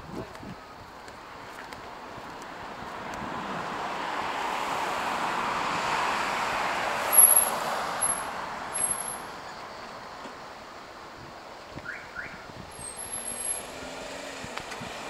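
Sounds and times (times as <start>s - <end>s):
car passing: 1.9s - 10.7s, 11.8s - 15.0s
high-pitched squeaks: 7.2s - 9.3s.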